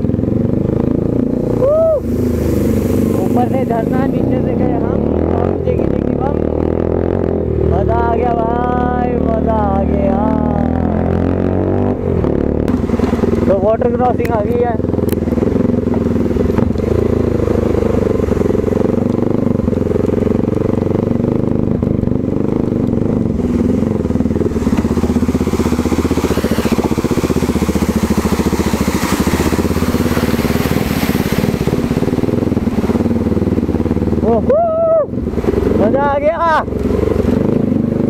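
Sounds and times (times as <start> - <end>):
motorcycle engine at low revs: 0.0 - 38.0
water and stones hissing: 1.7 - 4.5, 24.4 - 33.0.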